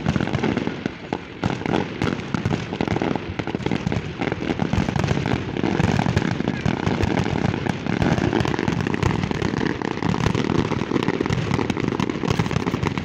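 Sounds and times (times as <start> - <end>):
fireworks bangs and crackles: 0.0 - 13.0.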